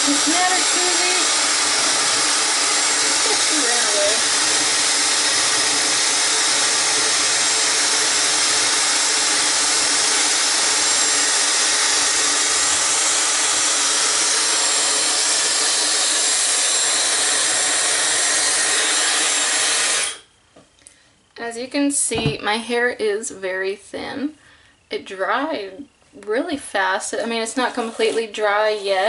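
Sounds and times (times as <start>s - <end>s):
hair dryer running: 0.0s - 20.2s.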